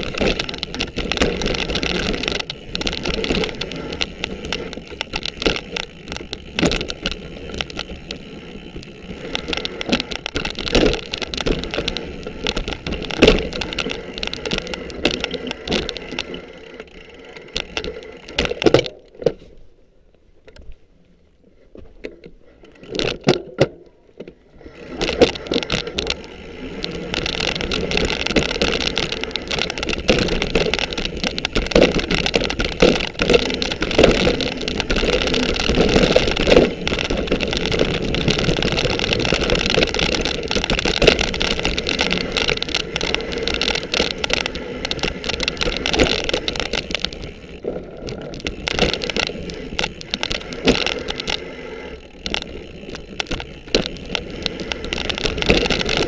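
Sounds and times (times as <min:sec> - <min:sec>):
bike rattling and knocking: 0:00.0 - 0:19.3, 0:21.9 - 0:56.0
bike tyres on dirt trail: 0:00.0 - 0:56.0.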